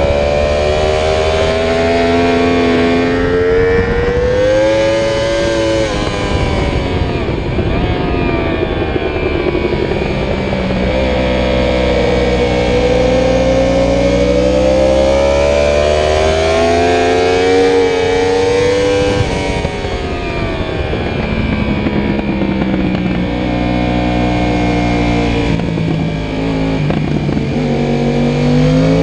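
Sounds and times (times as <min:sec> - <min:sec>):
motorcycle engine revving: 0:00.0 - 0:29.0
wind rush: 0:00.0 - 0:29.0.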